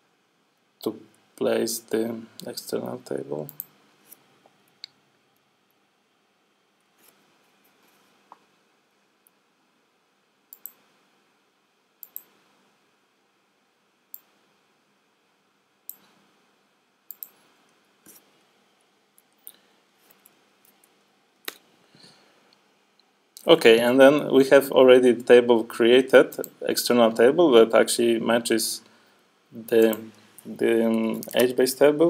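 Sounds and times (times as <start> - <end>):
mouse and keyboard clicks: 10.5 - 10.8, 12.0 - 12.3, 17.1 - 17.4.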